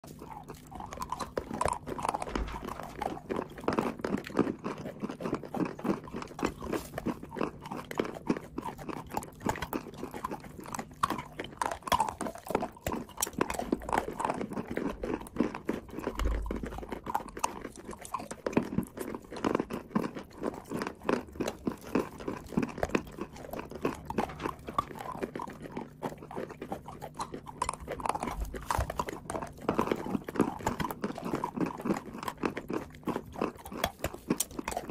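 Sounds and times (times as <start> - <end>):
chewing crunchy chalk: 0.0 - 34.9.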